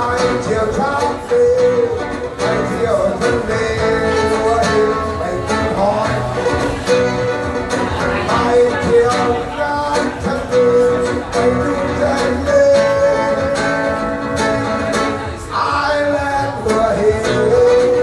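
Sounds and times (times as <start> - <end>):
man singing: 0.0 - 7.4, 8.0 - 18.0
acoustic guitar strumming: 0.0 - 18.0.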